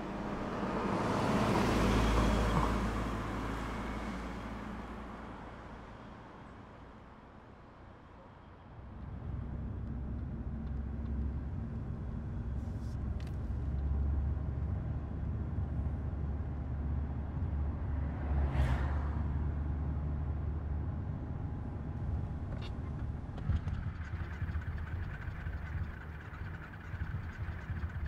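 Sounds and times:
vehicle passing by: 0:00.0 - 0:04.8, 0:17.8 - 0:19.8
car engine and road rumble: 0:00.0 - 0:28.0.

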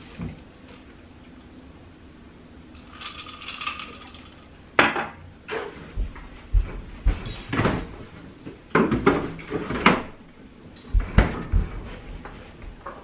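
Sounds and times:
footsteps on hard floor: 0:05.5 - 0:09.8, 0:10.9 - 0:13.0.

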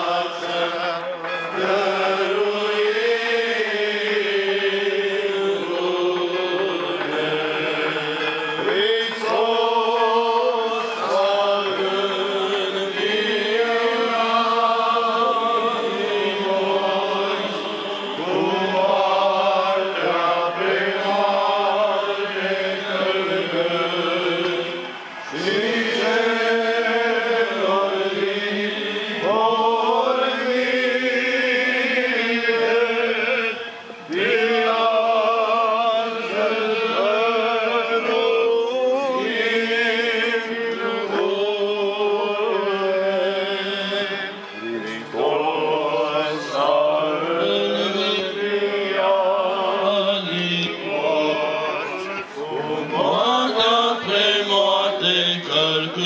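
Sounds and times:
church chanting: 0:00.0 - 0:56.0
held vocal drone tones: 0:00.0 - 0:56.0.

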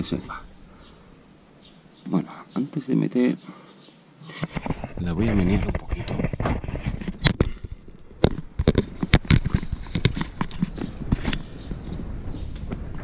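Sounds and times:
motorcycle parts knocking and rattling: 0:05.4 - 0:13.0.

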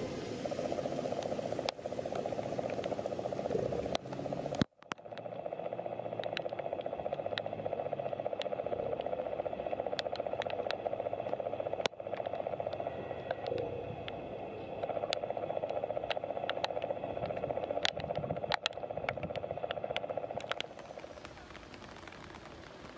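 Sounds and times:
sharp ticks: 0:00.5 - 0:22.9.

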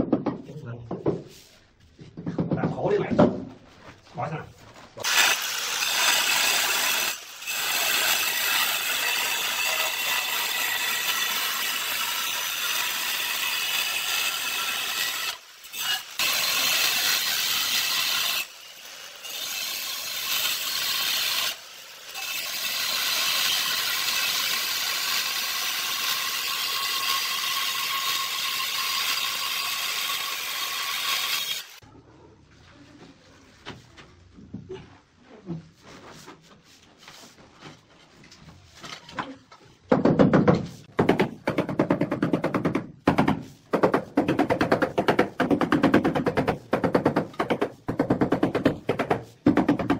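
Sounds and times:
angle grinder cutting tile: 0:05.0 - 0:31.8.

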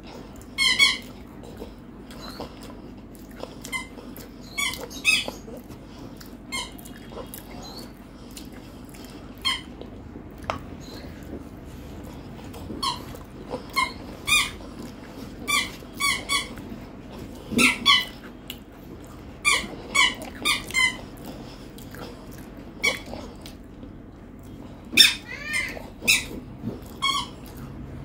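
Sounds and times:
high squeaky animal calls: 0:03.7 - 0:05.5, 0:12.8 - 0:14.6, 0:24.9 - 0:26.4.

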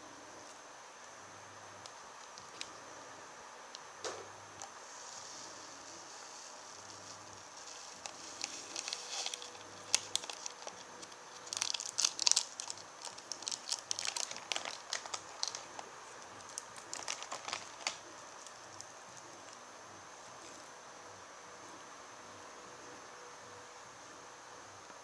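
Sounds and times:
plastic sachet crinkling: 0:04.6 - 0:19.6.

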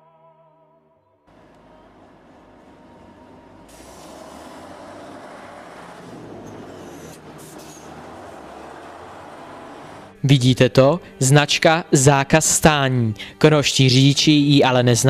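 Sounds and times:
fire truck driving past: 0:01.3 - 0:11.2.

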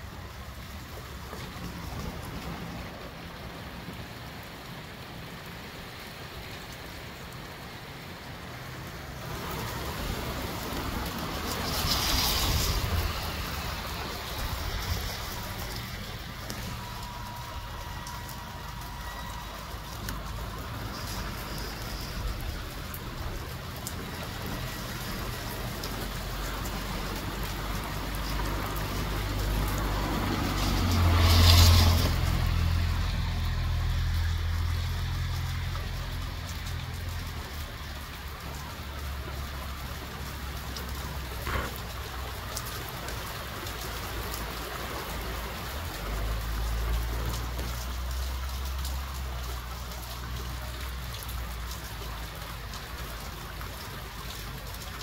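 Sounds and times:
rain shower hiss: 0:00.0 - 0:55.0
wind rumbling on microphone: 0:09.2 - 0:33.8.

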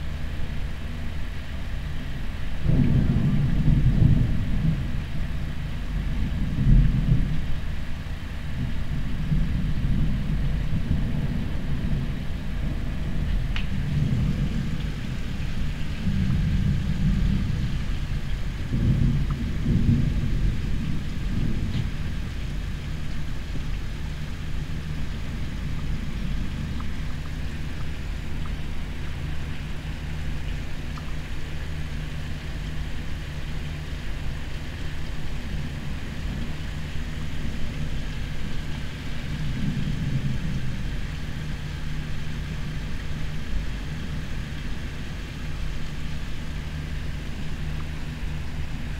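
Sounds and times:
distant thunder rumbling: 0:02.6 - 0:30.5, 0:34.8 - 0:45.0.

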